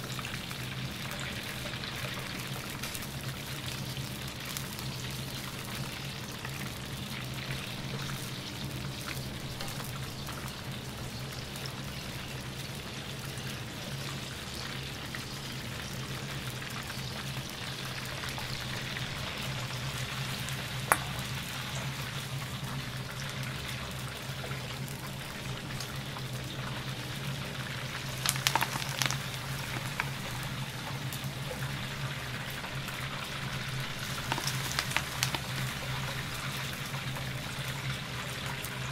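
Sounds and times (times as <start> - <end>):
shrimp deep-frying in oil: 0.0 - 38.9
steady low hum: 16.1 - 38.3.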